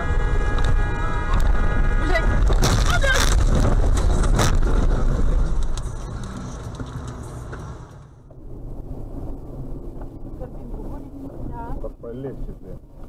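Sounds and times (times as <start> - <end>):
car crash noise: 0.0 - 10.2
road and engine rumble: 0.0 - 13.0.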